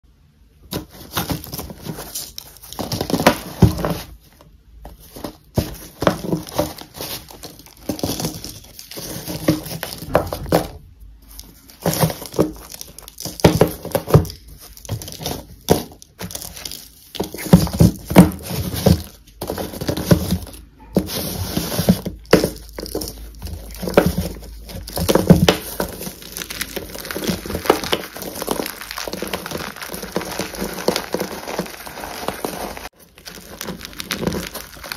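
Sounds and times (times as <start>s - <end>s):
chalk snapping and crunching: 21.2s - 34.9s.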